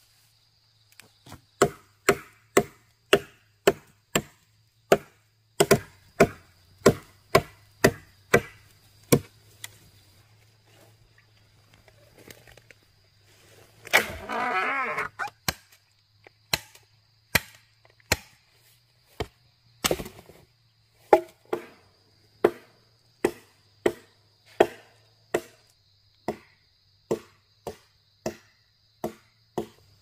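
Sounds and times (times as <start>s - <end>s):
sharp chopping strokes: 1.3s - 9.8s.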